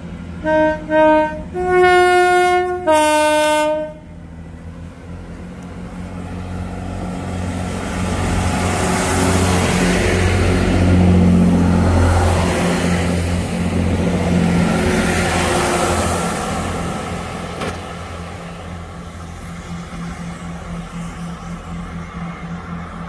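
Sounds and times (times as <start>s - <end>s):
diesel train engines running: 0.0s - 23.0s
train horn: 0.4s - 4.2s.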